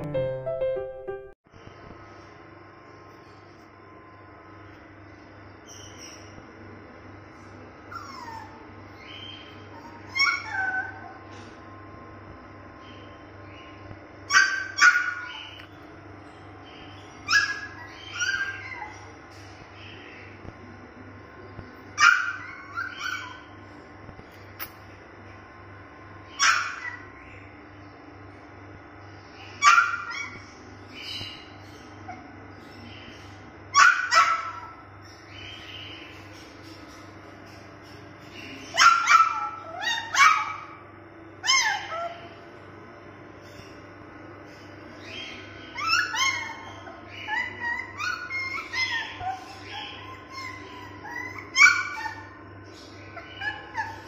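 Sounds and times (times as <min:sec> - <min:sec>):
puppy whimpering and whining: 0:07.9 - 0:08.7, 0:41.4 - 0:42.2, 0:45.7 - 0:52.4, 0:53.2 - 0:54.0
puppy yelping and whining: 0:07.9 - 0:08.7, 0:09.7 - 0:11.2, 0:14.3 - 0:15.4, 0:17.2 - 0:19.2, 0:22.0 - 0:23.5, 0:26.4 - 0:27.1, 0:29.6 - 0:30.4, 0:38.7 - 0:40.8, 0:41.4 - 0:42.4, 0:45.7 - 0:54.0.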